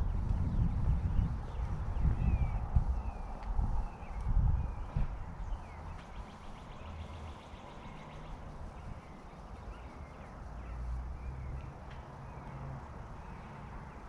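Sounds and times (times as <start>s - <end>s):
low rumble: 0.0s - 6.0s
birds chirping and trilling: 0.0s - 14.0s.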